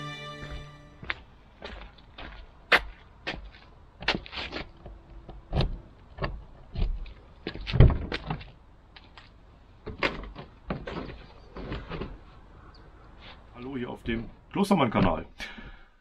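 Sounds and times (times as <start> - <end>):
footsteps climbing entry step: 1.0 - 9.2, 9.8 - 12.3, 14.0 - 14.4.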